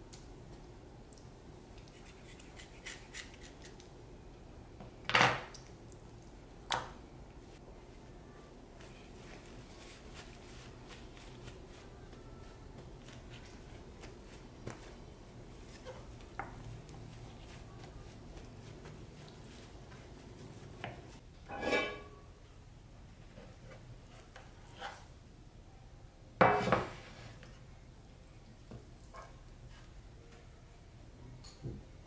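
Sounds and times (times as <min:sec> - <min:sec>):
paper towel rustling and patting: 0:08.8 - 0:16.2.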